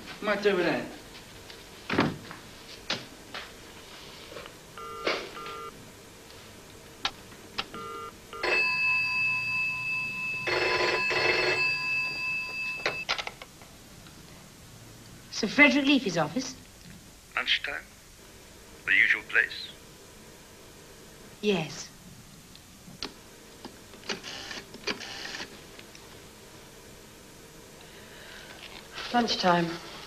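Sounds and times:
telephone ringing: 4.8s - 5.8s, 7.7s - 13.1s, 24.2s - 25.5s.

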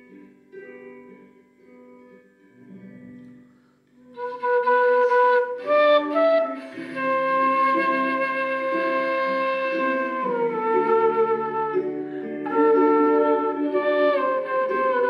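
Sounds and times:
quiet backing accompaniment: 0.0s - 15.0s
wooden flute melody: 4.0s - 15.0s.

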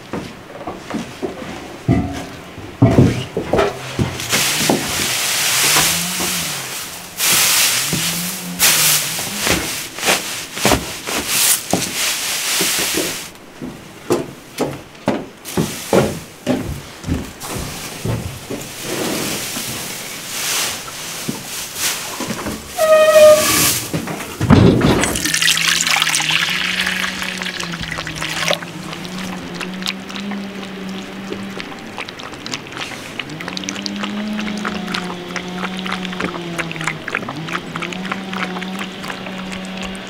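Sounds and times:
liquid pouring and splashing: 4.2s - 9.0s, 24.9s - 40.0s
pitchfork rustling through hay: 4.2s - 13.3s, 17.4s - 24.0s.

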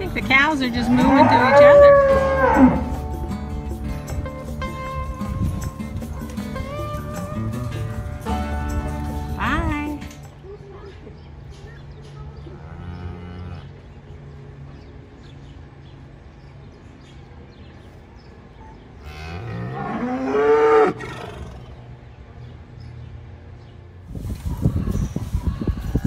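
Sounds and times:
cow mooing: 0.6s - 3.1s, 12.5s - 13.8s, 19.0s - 21.6s.

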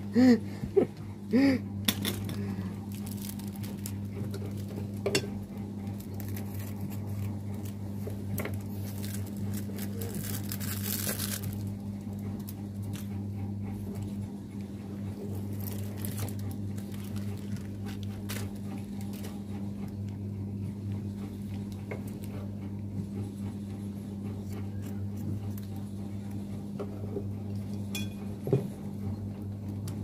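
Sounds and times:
steady low hum: 0.0s - 30.0s
faint plastic rustling: 2.3s - 4.9s, 6.0s - 11.7s, 15.3s - 19.4s.

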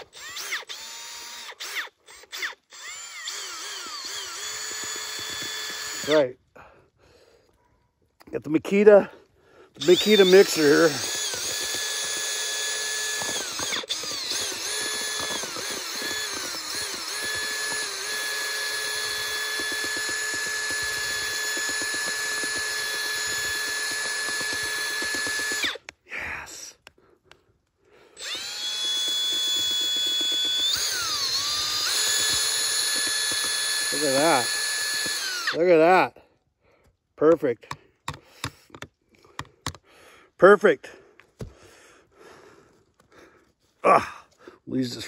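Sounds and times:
drill mixer motor whine: 0.0s - 6.2s, 9.8s - 25.9s, 28.2s - 35.6s.

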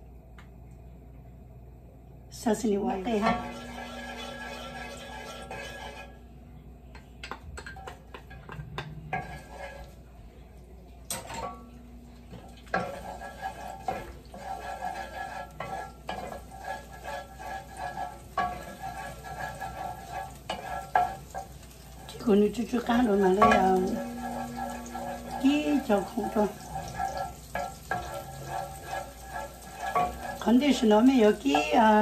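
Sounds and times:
food sizzling in hot oil: 2.8s - 6.2s, 12.0s - 32.0s
spatula scraping a pot: 3.1s - 6.2s, 7.8s - 10.1s, 12.3s - 32.0s.

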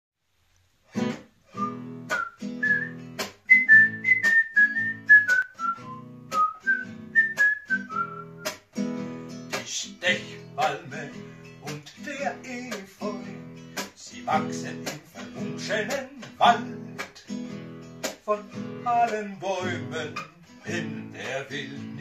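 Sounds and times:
nylon-string guitar strummed: 0.9s - 22.0s
man whistling a melody: 1.5s - 8.6s.

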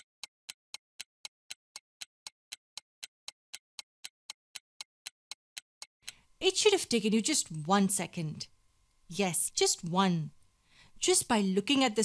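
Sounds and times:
clock ticking: 0.0s - 7.4s.

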